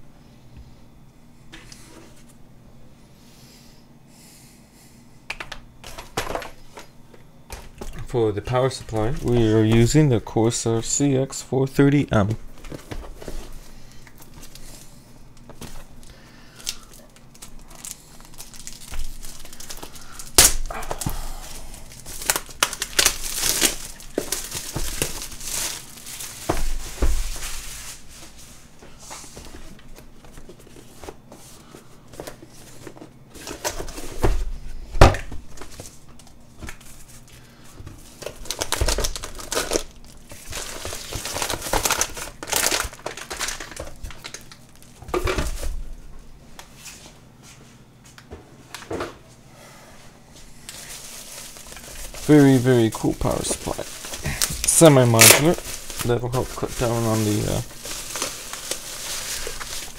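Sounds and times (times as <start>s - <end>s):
packaging rustling and crinkling: 7.5s - 10.3s, 12.5s - 34.4s, 35.2s - 45.8s, 50.6s - 59.9s.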